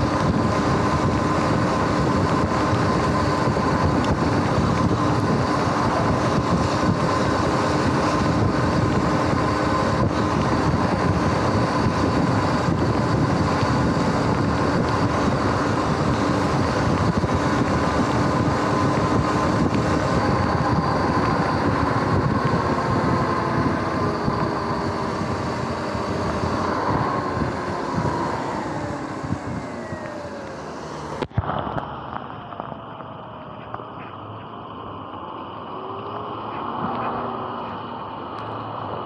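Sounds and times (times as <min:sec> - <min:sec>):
electric motor whine: 0:00.0 - 0:39.0
wind rush and road noise: 0:00.0 - 0:39.0.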